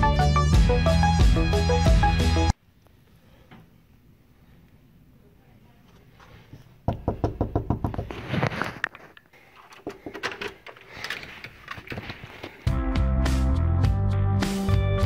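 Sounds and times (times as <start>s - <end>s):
fist knocking on door: 6.9s - 8.1s.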